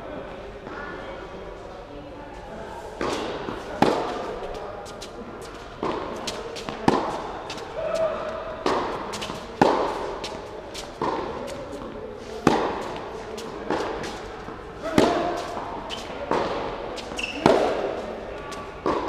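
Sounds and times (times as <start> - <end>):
tennis ball bounces: 3.0 - 4.3, 5.8 - 7.6, 8.6 - 14.2, 14.9 - 18.0
tennis racket strikes: 3.0 - 4.6, 5.8 - 7.6, 8.6 - 11.6, 12.4 - 14.2, 14.8 - 18.0.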